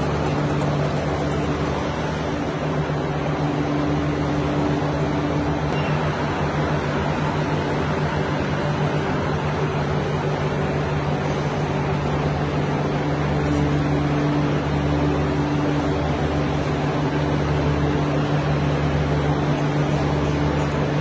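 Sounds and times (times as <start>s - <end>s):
electric motor hum: 0.0s - 21.0s
higher hum tone: 0.0s - 21.0s.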